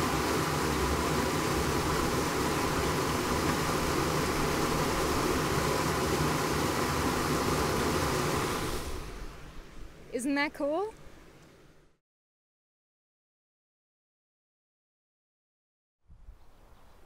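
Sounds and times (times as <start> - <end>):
water rushing through conduit: 0.0 - 9.4.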